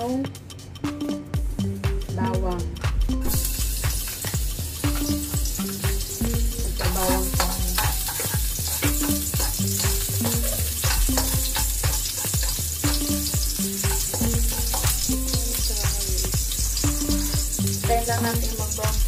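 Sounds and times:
background music with bass line: 0:00.0 - 0:19.0
garlic sizzling in hot oil: 0:03.3 - 0:19.0
spatula scraping and tapping pan: 0:03.8 - 0:16.0.

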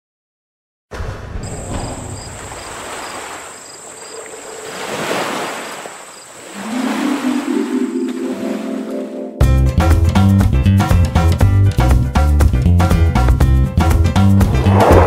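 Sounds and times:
rushing surf-like noise: 0:02.1 - 0:09.1, 0:14.4 - 0:15.0
low melody: 0:06.7 - 0:10.8.

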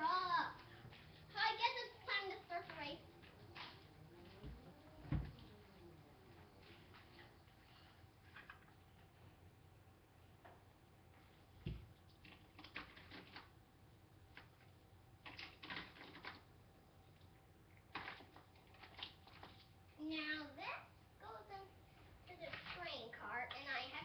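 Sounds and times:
low thump: 0:04.4 - 0:05.5.

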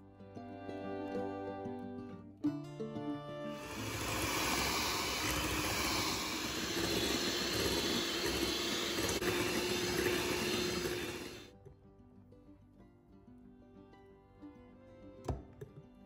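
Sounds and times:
electric hand mixer whipping: 0:03.6 - 0:11.5.

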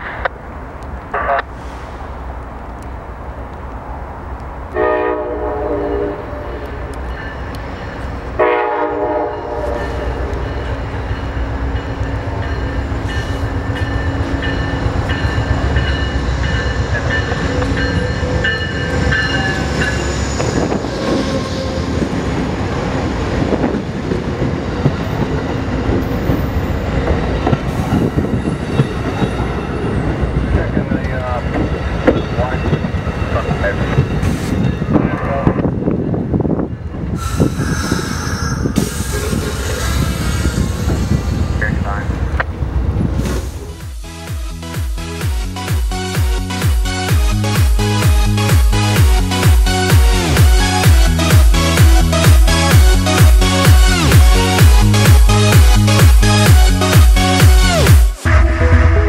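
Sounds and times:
train horn: 0:04.8 - 0:07.0, 0:08.4 - 0:10.6, 0:17.4 - 0:22.2, 0:58.2 - 0:59.0.

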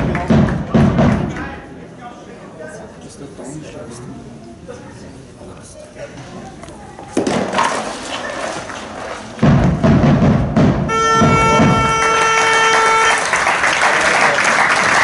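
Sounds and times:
heavy drum hits: 0:00.0 - 0:01.4, 0:09.4 - 0:12.2.

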